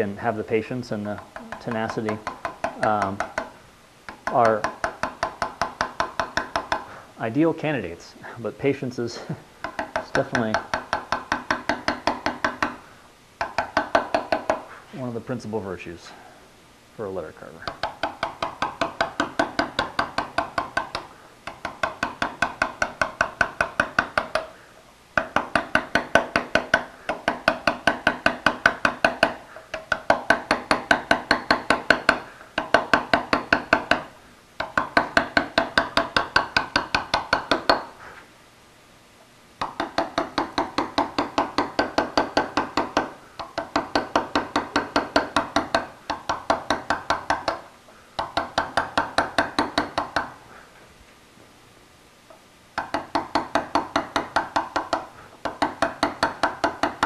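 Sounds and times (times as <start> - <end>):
mallet tapping chisel into stone: 1.0 - 6.9, 9.6 - 12.8, 13.4 - 14.7, 17.6 - 24.6, 25.2 - 38.0, 39.6 - 50.4, 52.8 - 57.0.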